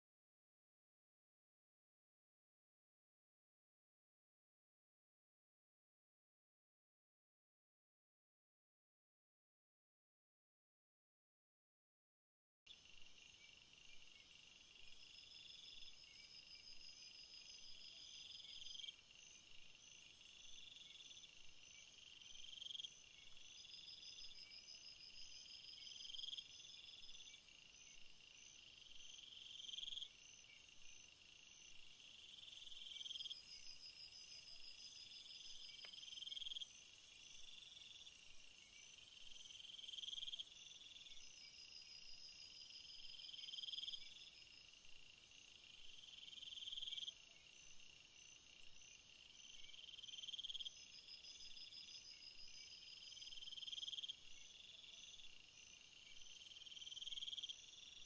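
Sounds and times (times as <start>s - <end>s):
insects trilling: 12.7s - 58.0s
steady high insect whine: 12.7s - 58.0s.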